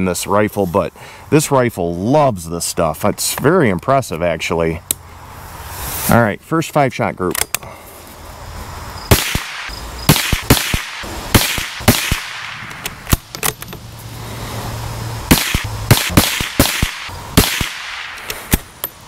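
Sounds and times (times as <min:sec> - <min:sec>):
rifle shots: 0:09.1 - 0:13.3, 0:15.3 - 0:18.7.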